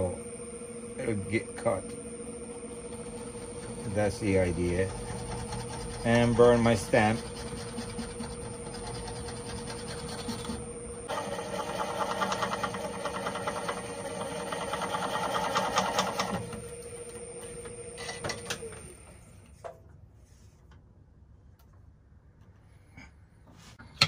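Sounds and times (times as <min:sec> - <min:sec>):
wood lathe motor hum: 0:00.0 - 0:19.2
gouge scraping with rapid ticking: 0:02.6 - 0:16.4.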